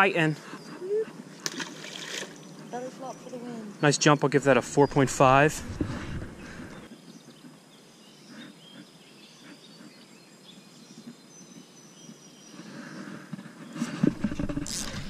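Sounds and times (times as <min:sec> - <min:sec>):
faint bird calls: 0:00.4 - 0:01.2.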